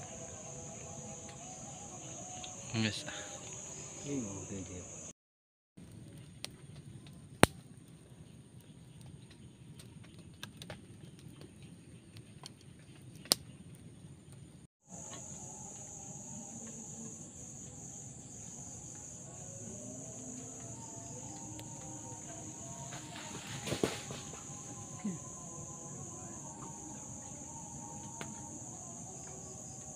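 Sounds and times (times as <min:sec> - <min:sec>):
crickets chirping: 0:00.0 - 0:05.1, 0:14.9 - 0:29.9
high insect buzz: 0:00.0 - 0:05.1, 0:14.9 - 0:29.9
campfire crackling and popping: 0:05.8 - 0:14.5, 0:20.0 - 0:25.7.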